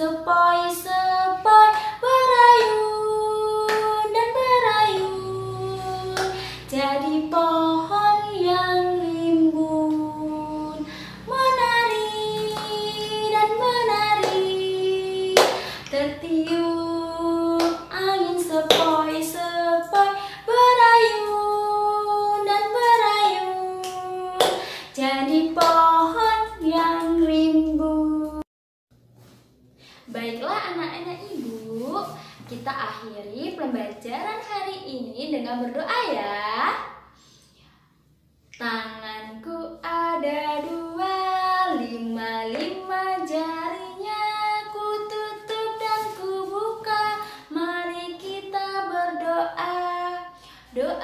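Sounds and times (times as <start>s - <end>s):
woman singing: 0.0s - 28.4s, 38.6s - 51.0s
sharp hand claps: 15.4s - 15.9s, 23.8s - 24.7s.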